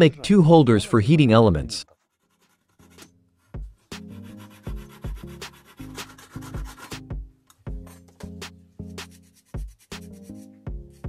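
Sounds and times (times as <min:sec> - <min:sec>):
background music with beat: 0:03.6 - 0:11.0.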